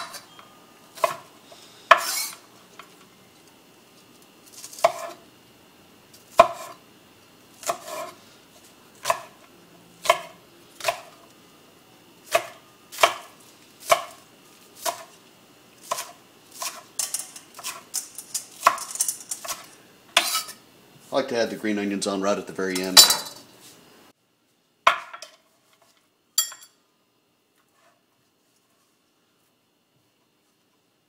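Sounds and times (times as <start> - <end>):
knife chopping on cutting board: 1.9 - 2.4, 4.7 - 5.2, 6.3 - 6.8, 7.6 - 8.2, 9.0 - 9.4, 10.0 - 11.1, 12.3 - 14.2, 14.8 - 15.1, 15.8 - 16.9.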